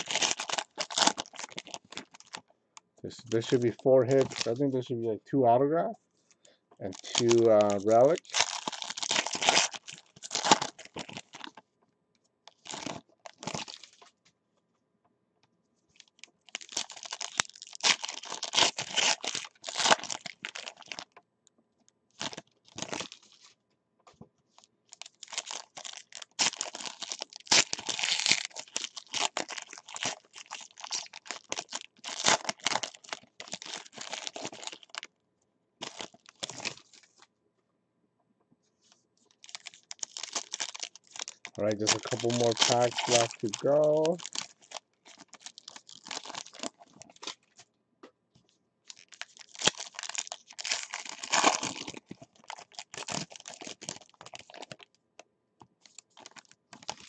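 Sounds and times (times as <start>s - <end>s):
foil wrapper tearing and crinkling: 0.0s - 2.4s, 3.3s - 4.6s, 6.8s - 11.6s, 12.5s - 14.0s, 16.0s - 21.2s, 22.1s - 23.6s, 24.5s - 35.1s, 35.8s - 37.3s, 39.3s - 47.6s, 48.9s - 54.9s, 55.8s - 57.0s.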